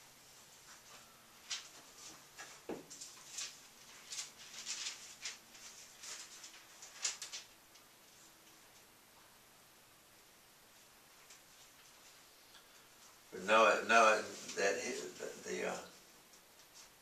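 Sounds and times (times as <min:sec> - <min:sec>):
thin pages being turned: 0:01.4 - 0:07.6.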